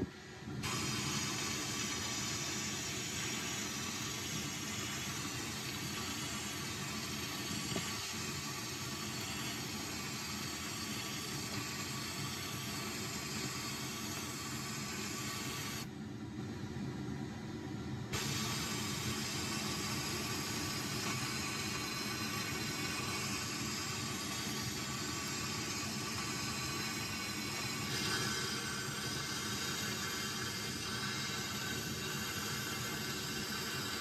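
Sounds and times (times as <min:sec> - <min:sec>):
dust vacuum running: 0:00.0 - 0:15.9, 0:18.1 - 0:34.0
sandblasting gun hissing: 0:00.6 - 0:15.9, 0:18.2 - 0:34.0.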